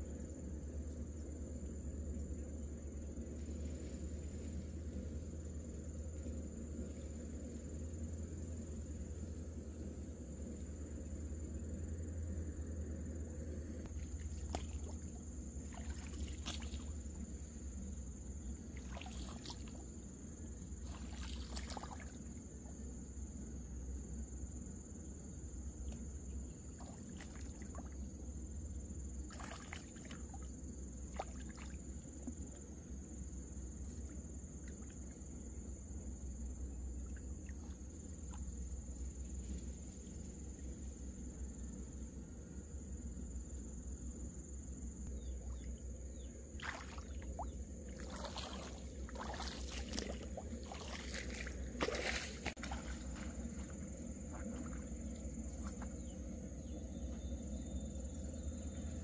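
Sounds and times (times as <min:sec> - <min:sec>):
insects chirring: 0:00.0 - 0:59.0.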